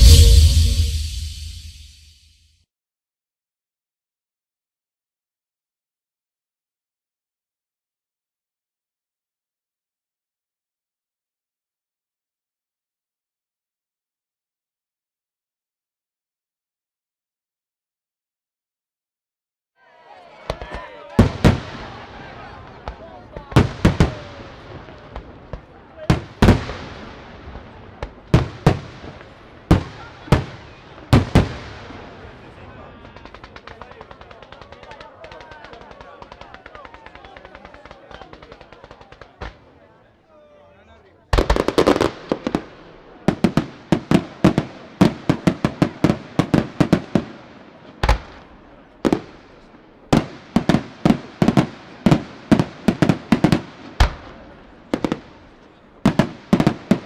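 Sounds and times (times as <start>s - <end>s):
fireworks bangs with echo: 0.0s - 2.0s, 20.5s - 39.8s, 41.3s - 57.0s.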